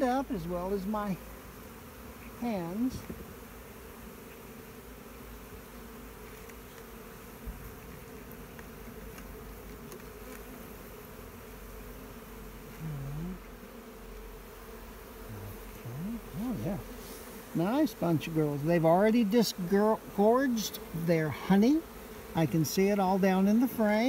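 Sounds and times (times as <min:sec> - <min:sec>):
bees buzzing: 0:00.0 - 0:24.0
person humming: 0:12.7 - 0:13.5, 0:15.2 - 0:16.9.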